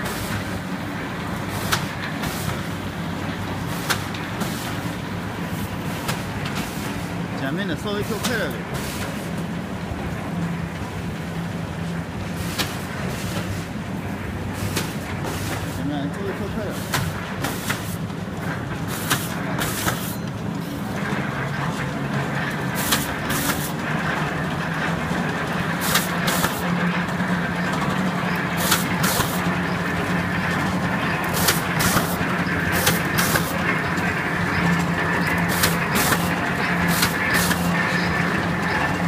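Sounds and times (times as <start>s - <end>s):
machine humming: 0.0s - 39.0s
sharp machine clicks: 31.1s - 34.0s.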